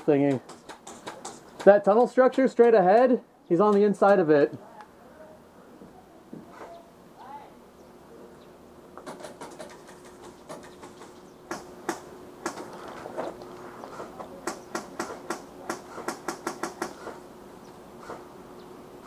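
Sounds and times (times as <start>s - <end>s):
pellets cracking against plywood: 0.0s - 4.2s, 9.0s - 17.2s.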